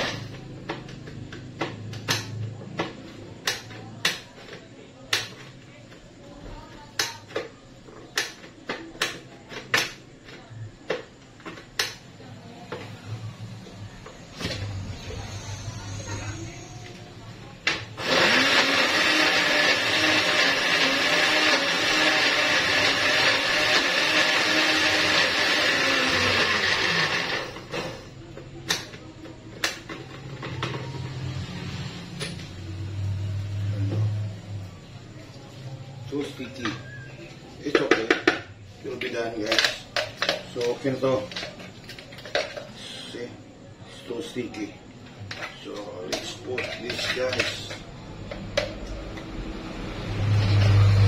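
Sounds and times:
blender running: 0:17.7 - 0:28.0, 0:49.4 - 0:51.0.

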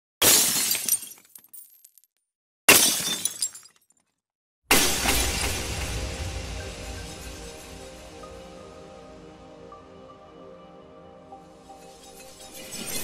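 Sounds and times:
glass shattering: 0:00.2 - 0:02.0, 0:02.7 - 0:04.0, 0:04.7 - 0:05.9
deep boom: 0:04.7 - 0:09.5.

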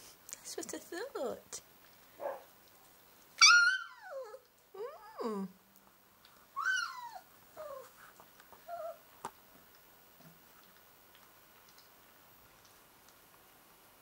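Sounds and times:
puppy whining: 0:03.4 - 0:05.5, 0:06.5 - 0:09.1.

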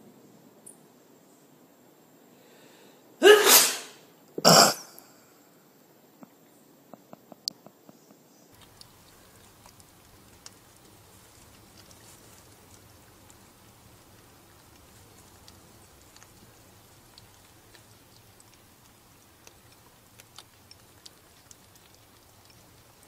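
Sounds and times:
low steady hiss: 0:00.0 - 0:23.0
animals crunching dry kibble: 0:08.6 - 0:23.0.

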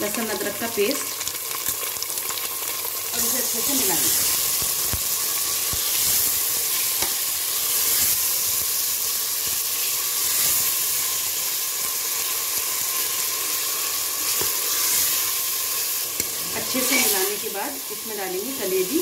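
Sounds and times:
meat sizzling in oil: 0:00.0 - 0:19.0.

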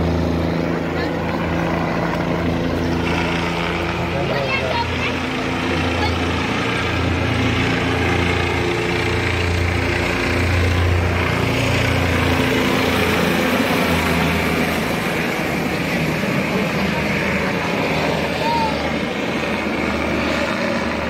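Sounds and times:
helicopter rotor and engine hum: 0:00.0 - 0:21.0.

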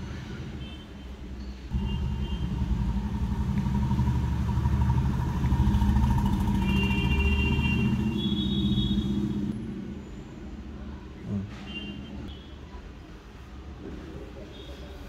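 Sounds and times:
vehicle engine rumble: 0:01.7 - 0:12.3.

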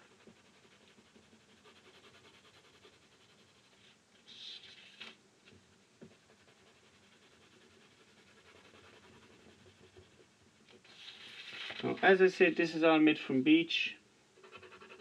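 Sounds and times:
pencil scratching on paper: 0:00.0 - 0:04.9, 0:06.0 - 0:11.4, 0:14.4 - 0:15.0.

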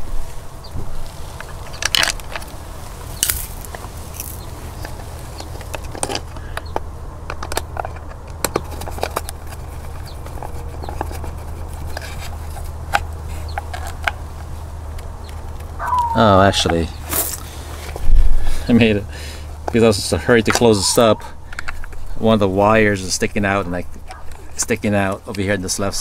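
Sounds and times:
hands handling plastic cover: 0:01.4 - 0:06.6.

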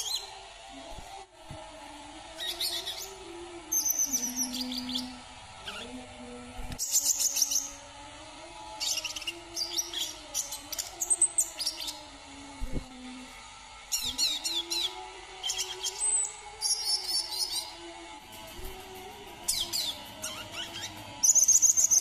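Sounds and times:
bird chirping and trilling: 0:19.5 - 0:22.0.

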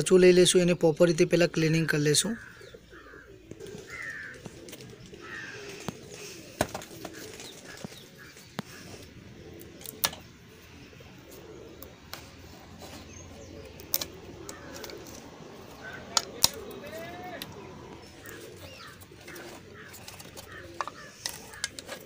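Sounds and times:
bird calls: 0:01.5 - 0:22.0.

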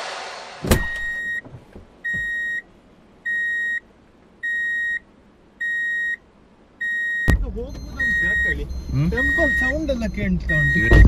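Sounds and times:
electronic warning beeps: 0:00.8 - 0:01.4, 0:02.0 - 0:02.6, 0:03.3 - 0:03.8, 0:04.4 - 0:05.0, 0:05.6 - 0:06.2, 0:06.8 - 0:11.0.

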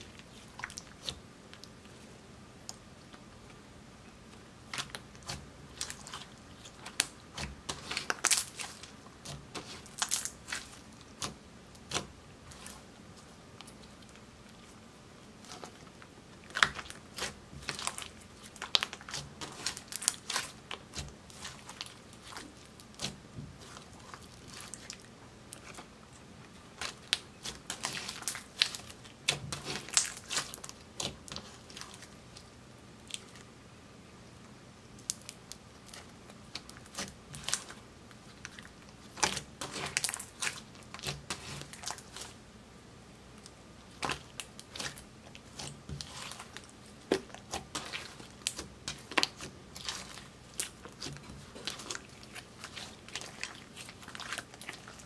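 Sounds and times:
slime squishing and popping: 0:26.8 - 0:32.0, 0:43.4 - 0:55.0.

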